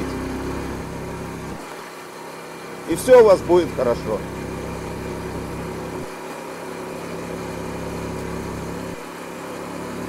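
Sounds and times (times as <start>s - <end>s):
motorcycle engine rumbling: 0.0s - 1.7s, 2.9s - 6.1s.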